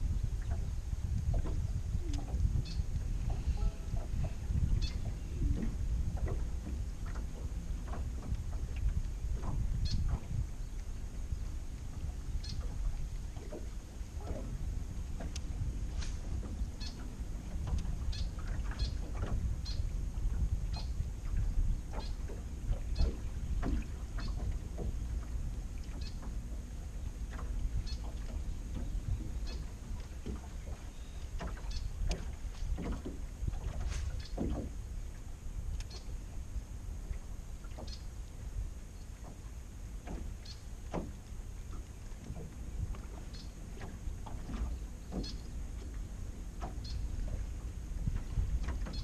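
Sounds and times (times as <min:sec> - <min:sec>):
low wind rumble: 0:00.0 - 0:49.0
waves lapping against hull: 0:00.0 - 0:49.0
light knocks and ticks: 0:15.2 - 0:15.5, 0:40.0 - 0:46.0.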